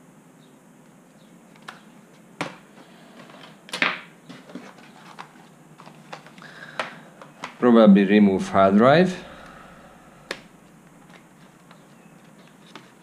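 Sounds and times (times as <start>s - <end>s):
faint low hum: 0.0s - 13.0s
laptop clatter: 2.4s - 7.6s.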